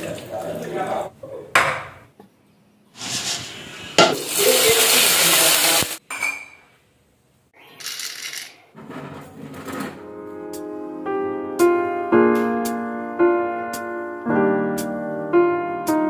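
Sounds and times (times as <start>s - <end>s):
spices sizzling in hot oil: 3.0s - 6.0s
kitchenware knock: 4.0s - 4.3s.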